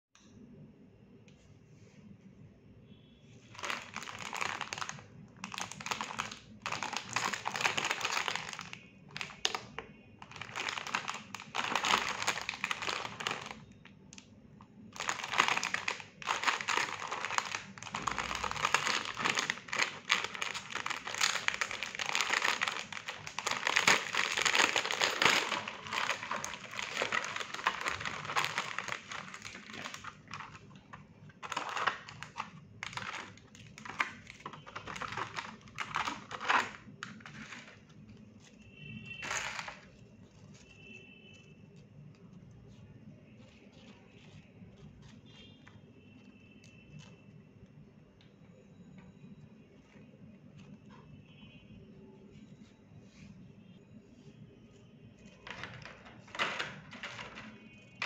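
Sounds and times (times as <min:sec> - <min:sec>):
plastic wrapper crinkling: 0:03.4 - 0:14.3, 0:14.9 - 0:42.8, 0:55.3 - 0:58.0
plastic tray rustling: 0:03.5 - 0:09.6, 0:10.2 - 0:13.6, 0:15.0 - 0:37.8, 0:39.2 - 0:40.0, 0:55.4 - 0:57.6.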